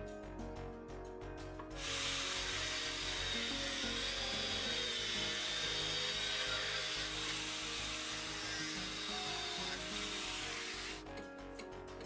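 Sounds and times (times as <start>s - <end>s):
background music: 0.0s - 12.0s
cut-off wheel grinding steel: 1.8s - 11.0s.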